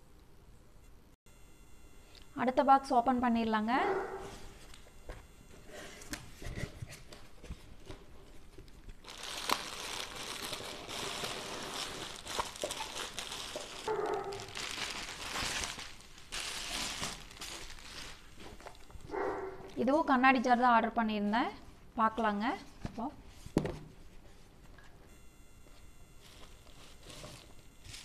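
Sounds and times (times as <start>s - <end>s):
bubble wrap crinkling: 6.0s - 19.9s, 26.2s - 28.0s.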